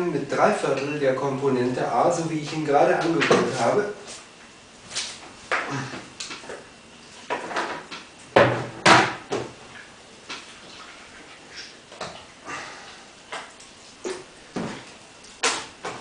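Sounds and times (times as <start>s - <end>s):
slime squelching and splatting: 13.2s - 16.0s.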